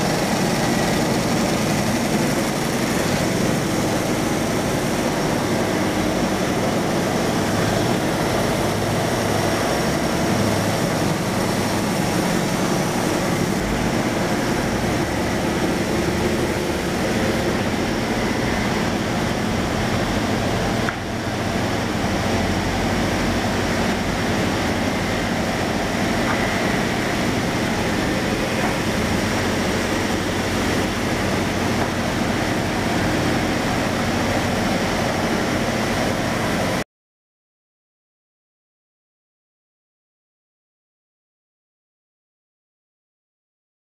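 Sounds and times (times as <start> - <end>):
wood-sawing machine running: 0.0 - 36.8.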